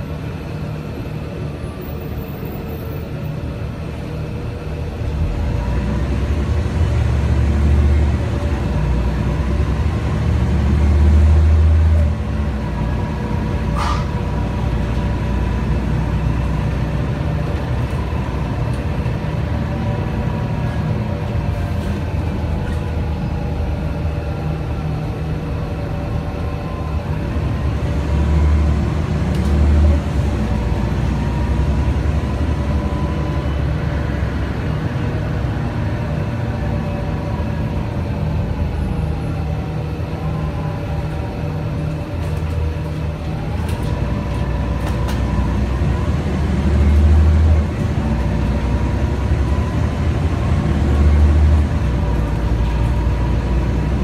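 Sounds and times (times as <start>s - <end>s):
bus engine drone: 0.0s - 54.0s.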